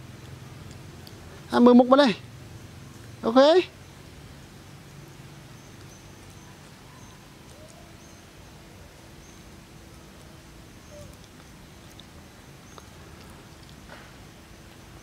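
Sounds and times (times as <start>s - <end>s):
low background noise: 0.0s - 15.0s
faint high chirps: 4.8s - 9.6s.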